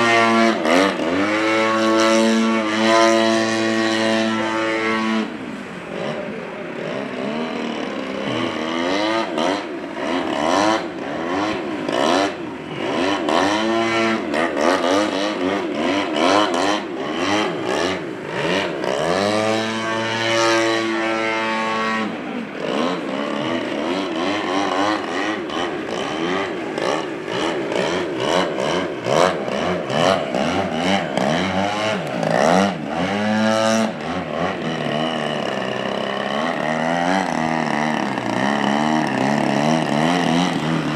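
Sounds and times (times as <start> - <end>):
model plane engine: 0.0 - 40.9.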